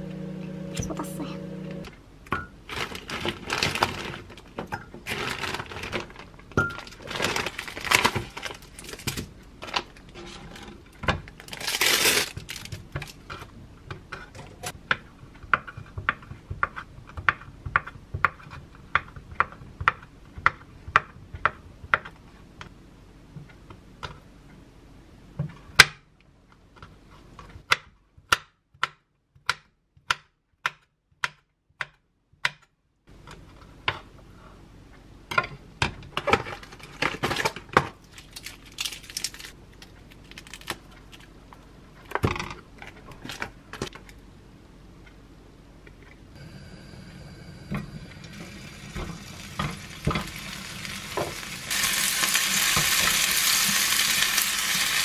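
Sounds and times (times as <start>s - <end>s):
plastic packaging crinkling: 2.7s - 10.0s, 11.4s - 13.2s, 36.6s - 41.3s.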